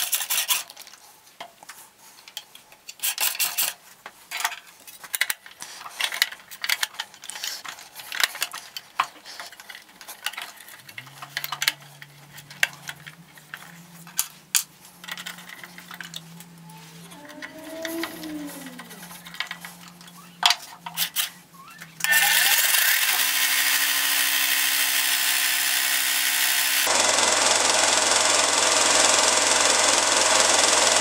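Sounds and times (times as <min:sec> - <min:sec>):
clicks and rattles of plastic parts: 0:00.0 - 0:23.4
low steady hum: 0:09.6 - 0:22.1
screwdriver turning a screw: 0:21.9 - 0:31.0.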